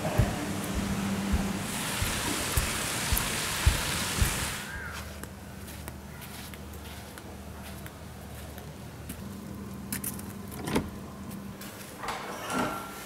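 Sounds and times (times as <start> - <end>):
footsteps on sandy path: 0.0 - 9.4
splashing water: 0.7 - 4.7.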